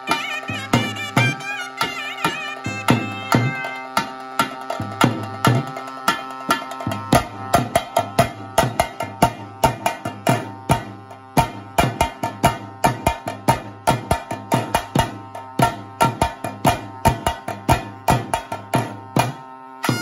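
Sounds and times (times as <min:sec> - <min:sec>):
folk drum beating fast: 0:00.0 - 0:20.0
reed pipe drone: 0:00.0 - 0:20.0.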